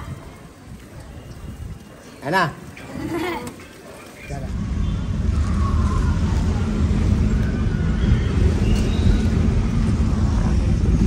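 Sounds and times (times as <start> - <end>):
vehicle rumble: 2.6 - 11.0.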